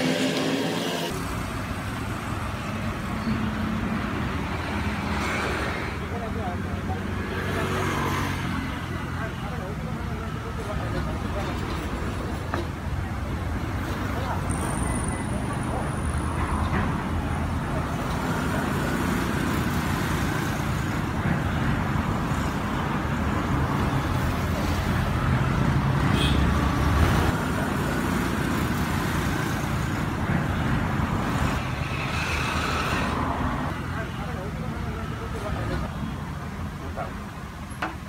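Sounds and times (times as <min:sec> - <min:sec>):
road traffic rumble: 0:00.0 - 0:38.0.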